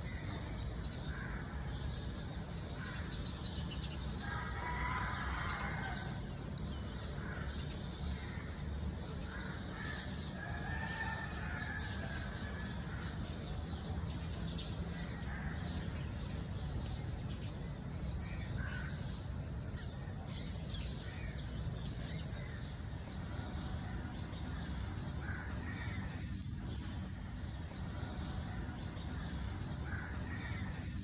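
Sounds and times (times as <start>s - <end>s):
small birds chirping: 11.3s - 31.0s.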